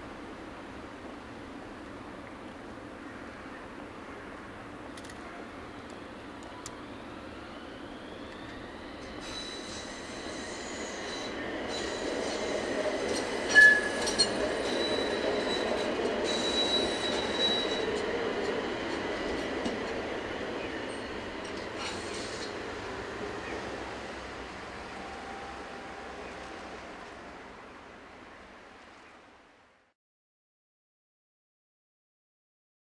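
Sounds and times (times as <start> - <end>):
tram motor whine: 5.4 - 27.7
tram wheels squealing on rails: 6.0 - 27.3.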